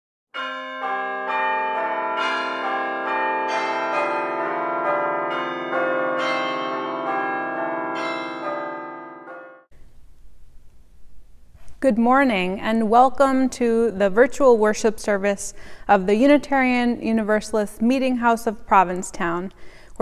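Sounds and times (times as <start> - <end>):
church bells ringing: 0.4 - 9.7.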